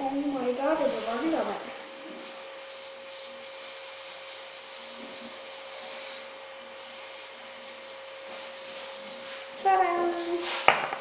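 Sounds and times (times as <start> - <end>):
aerosol can spraying: 2.1 - 10.7.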